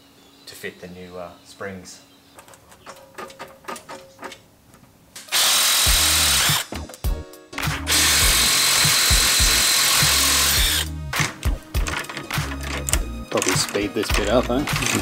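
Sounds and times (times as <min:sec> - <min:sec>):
impact wrench spinning: 0:05.3 - 0:06.7, 0:07.9 - 0:13.1.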